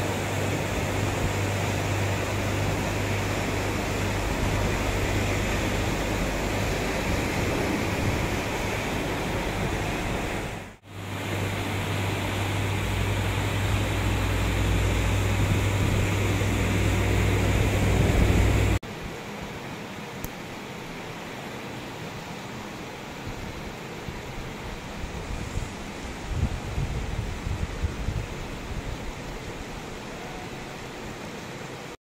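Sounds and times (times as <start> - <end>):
floodwater rushing: 0.0 - 18.8
heavy rain: 0.0 - 32.0
low rumble: 11.8 - 18.8.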